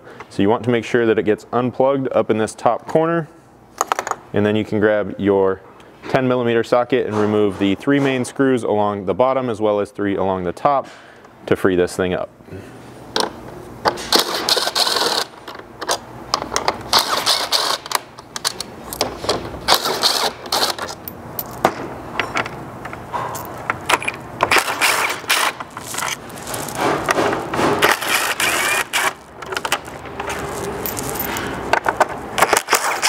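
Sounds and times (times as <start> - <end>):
impact driver running: 24.4 - 30.4.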